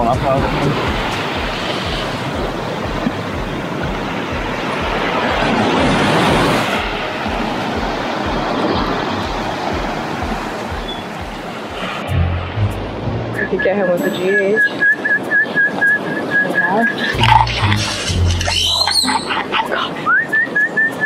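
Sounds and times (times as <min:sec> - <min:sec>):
small waves washing up shore: 0:00.0 - 0:12.1
wind noise on microphone: 0:00.0 - 0:13.5
regular low thudding: 0:07.3 - 0:13.6.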